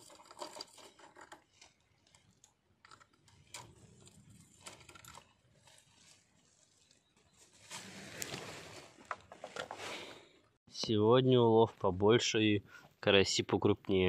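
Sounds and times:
fishing tackle clicks and rustling: 0:00.0 - 0:07.1.

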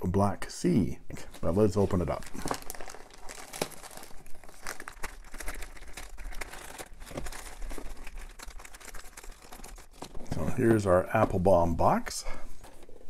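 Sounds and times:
plastic bag crinkling: 0:01.1 - 0:10.7
hand rummaging in bag: 0:01.2 - 0:11.4.

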